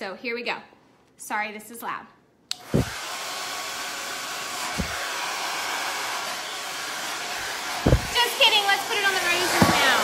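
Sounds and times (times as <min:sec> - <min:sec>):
hair dryer blowing: 0:02.5 - 0:10.0
low thumps: 0:02.8 - 0:03.0, 0:04.7 - 0:05.0, 0:07.8 - 0:08.2.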